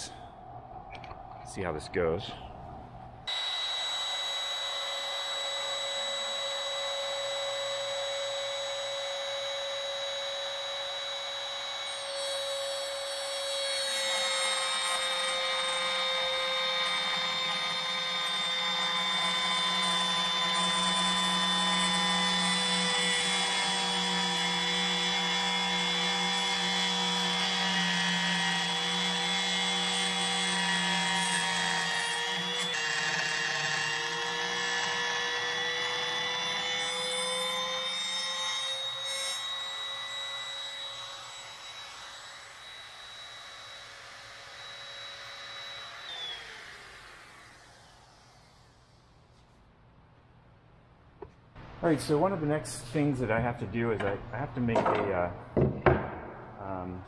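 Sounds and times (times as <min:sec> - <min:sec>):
router high whine: 0:03.2 - 0:49.4
router cutting wood: 0:03.3 - 0:49.1.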